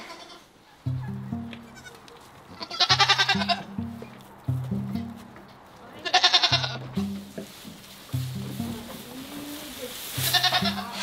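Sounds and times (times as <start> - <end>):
goat bleating: 0.0 - 4.2, 5.9 - 7.2, 8.6 - 11.0
background music with bass line: 0.9 - 1.9, 2.9 - 5.4, 6.6 - 7.5, 8.1 - 9.6, 10.2 - 11.0.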